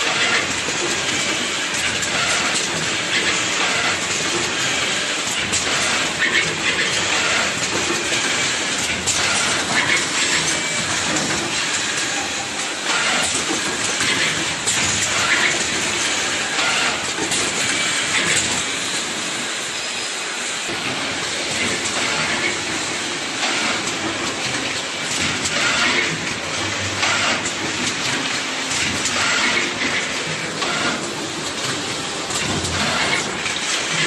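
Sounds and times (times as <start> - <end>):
machine clicks and clacks: 0.0 - 19.8, 20.5 - 34.0.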